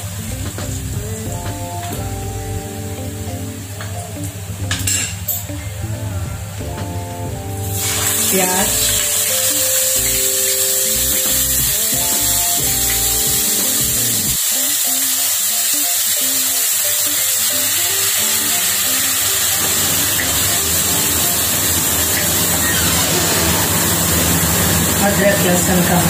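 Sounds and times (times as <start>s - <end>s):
instrumental music: 0.0s - 26.0s
onion frying in hot oil: 7.7s - 26.0s.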